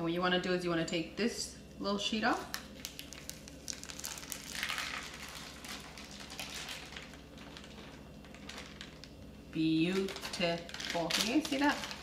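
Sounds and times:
paper crinkling and crackling: 0:02.5 - 0:12.0.

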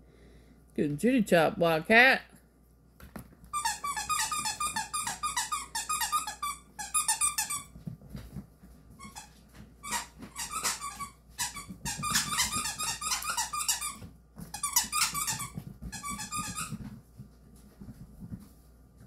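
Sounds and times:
squeaks: 0:03.5 - 0:07.7, 0:09.0 - 0:16.8
dog claws clicking on wooden floor: 0:09.8 - 0:17.0.

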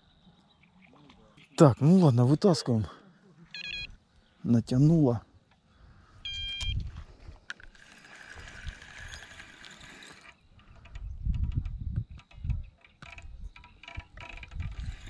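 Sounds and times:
fishing reel whirring: 0:07.5 - 0:11.0, 0:12.9 - 0:15.0.

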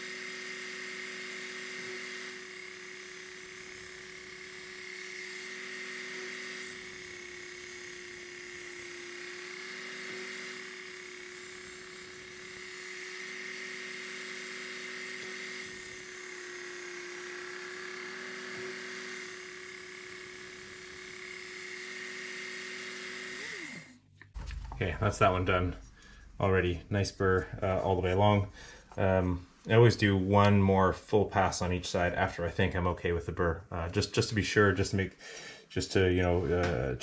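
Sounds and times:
belt sharpener motor whine: 0:00.0 - 0:24.1.

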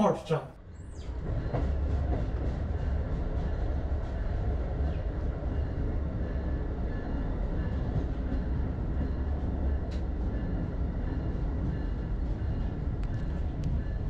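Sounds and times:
train rumble heard from inside: 0:00.0 - 0:14.0.

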